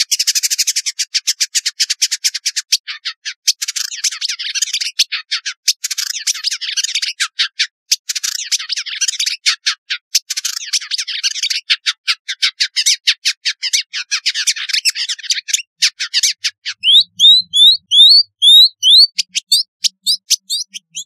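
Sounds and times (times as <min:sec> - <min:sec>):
bird chattering notes: 0:14.8 - 0:21.0
bird rising whistles: 0:16.8 - 0:21.0.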